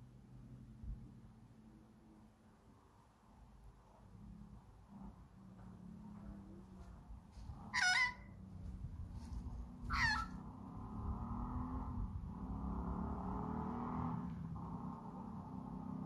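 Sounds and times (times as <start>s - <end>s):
quiet steady sound: 0.0s - 13.3s
magpie calls: 7.7s - 8.5s, 9.8s - 10.4s.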